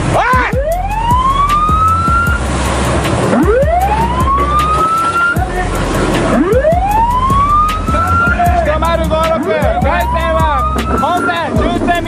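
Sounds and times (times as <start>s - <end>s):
engines running: 0.0s - 12.0s
rushing sea water: 0.0s - 12.0s
siren rising wails: 0.4s - 2.6s, 3.2s - 5.4s, 6.2s - 8.4s, 9.7s - 11.6s.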